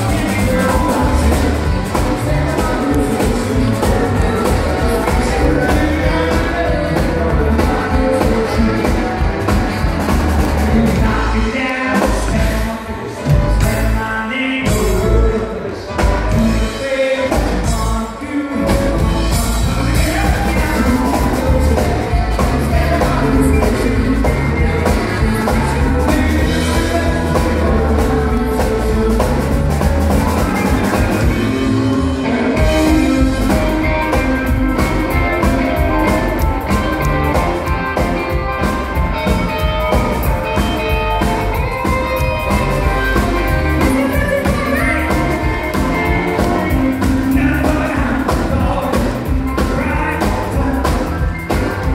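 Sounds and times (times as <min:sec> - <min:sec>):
drum kit: 0:00.0 - 0:51.9
electric guitar: 0:00.0 - 0:51.9
keyboard: 0:00.0 - 0:51.9
man singing lead vocal: 0:00.0 - 0:51.9
woman singing backup: 0:41.6 - 0:48.4.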